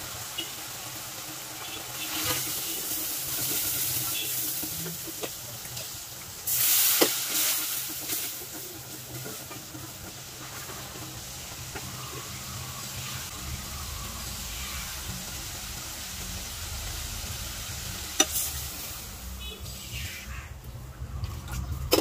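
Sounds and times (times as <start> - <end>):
gravy bubbling and sizzling in a pan: 0.0 - 22.0.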